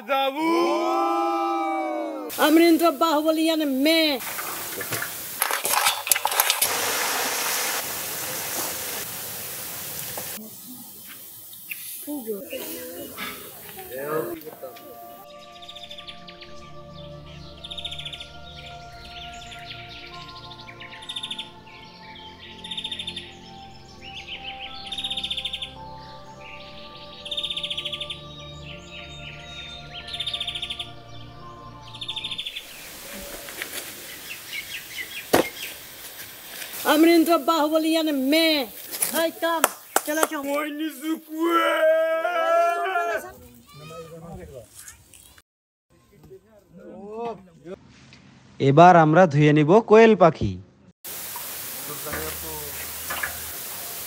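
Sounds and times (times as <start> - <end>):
steady hiss: 2.3 - 15.2, 32.5 - 41.5, 51.1 - 54.0
rapid trilling bird calls: 10.6 - 14.4, 15.1 - 35.9
sustained background music tones: 13.9 - 32.7.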